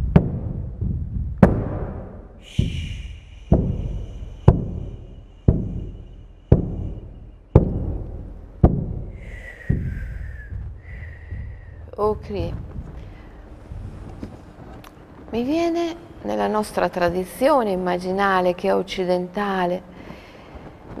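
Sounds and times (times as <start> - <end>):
frame drum booming: 0.0 - 14.8.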